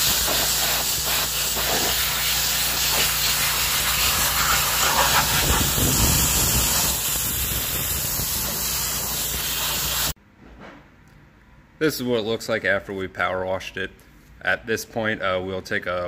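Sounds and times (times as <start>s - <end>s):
pressure washer spray on metal: 0.0s - 10.2s.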